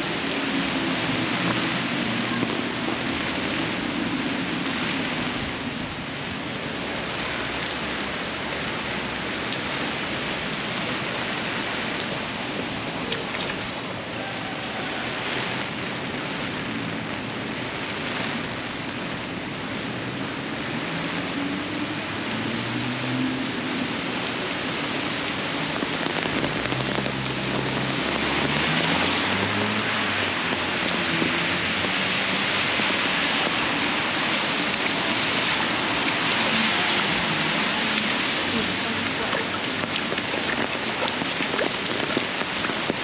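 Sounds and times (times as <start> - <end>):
heavy rain on pavement: 0.0 - 43.0.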